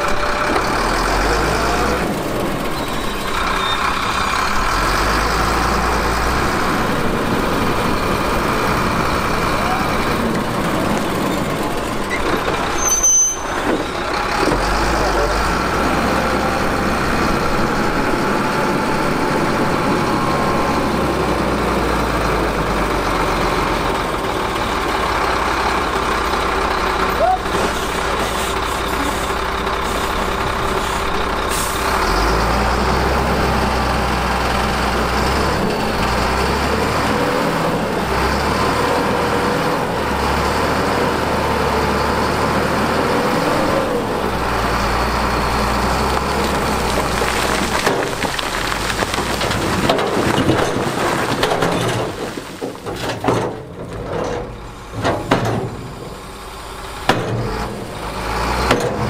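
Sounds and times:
diesel truck engine rumbling: 0.0 - 59.0
knocks and clatter: 46.2 - 56.2.

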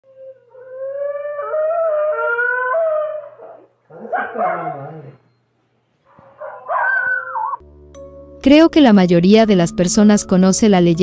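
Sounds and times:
high wailing howl: 0.1 - 5.2, 6.2 - 7.6.

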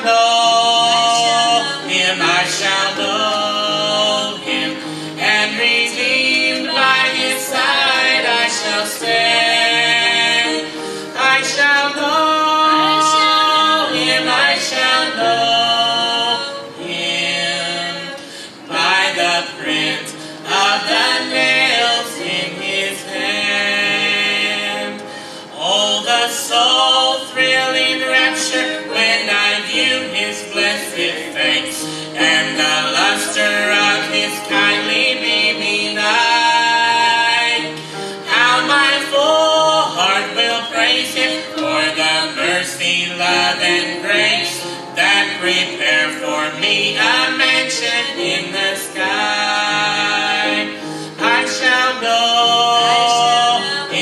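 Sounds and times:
man and woman singing duet: 0.0 - 54.0.

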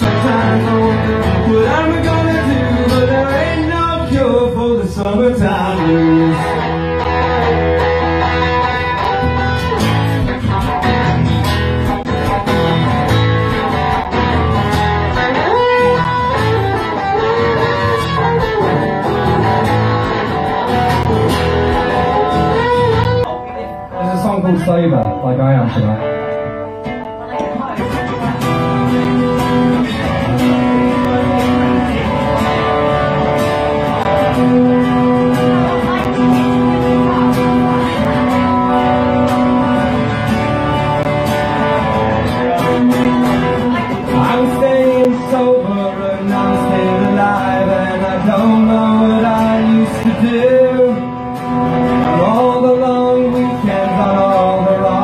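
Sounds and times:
man singing: 0.0 - 9.4, 29.1 - 55.0
acoustic guitar strumming: 0.0 - 55.0.

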